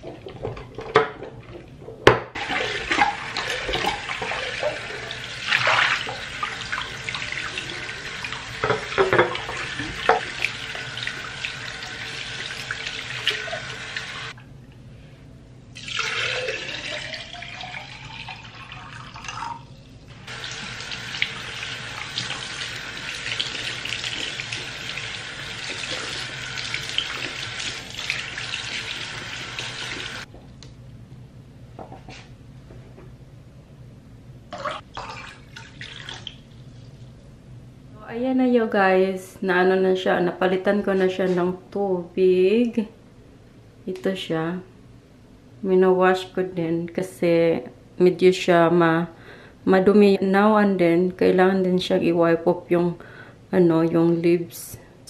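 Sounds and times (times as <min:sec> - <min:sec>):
tap running: 0:02.0 - 0:14.4, 0:20.2 - 0:30.3
water filling vase: 0:02.4 - 0:14.4, 0:15.8 - 0:30.3, 0:34.5 - 0:36.8.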